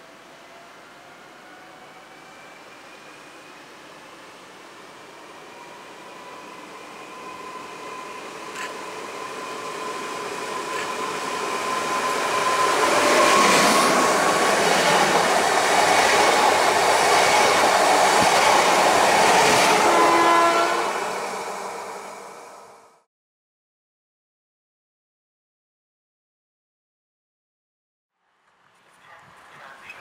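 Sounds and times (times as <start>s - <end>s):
electric train running noise: 0.0s - 23.0s
train brakes squealing: 5.3s - 15.3s.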